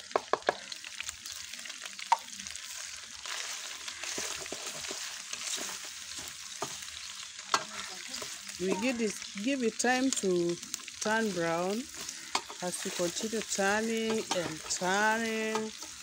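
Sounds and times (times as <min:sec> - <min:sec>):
onions and beef sizzling in oil: 0:00.0 - 0:16.0
wooden spoon scraping a pot: 0:03.3 - 0:06.8, 0:11.8 - 0:16.0.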